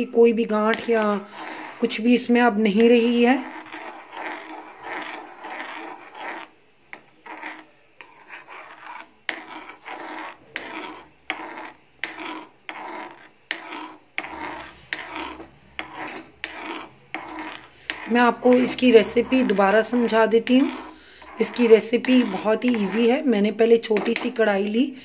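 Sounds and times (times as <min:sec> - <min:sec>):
metal spoon scraping a metal pan: 0:00.0 - 0:24.8.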